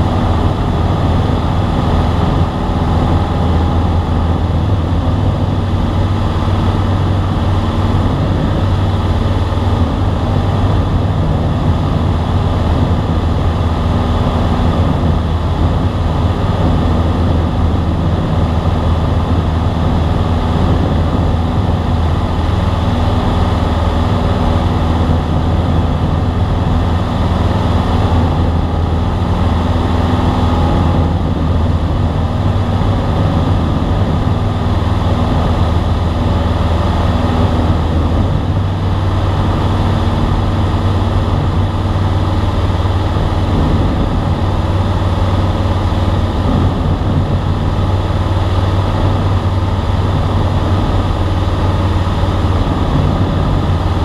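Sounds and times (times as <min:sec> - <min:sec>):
airplane engine droning in cockpit: 0:00.0 - 0:54.0.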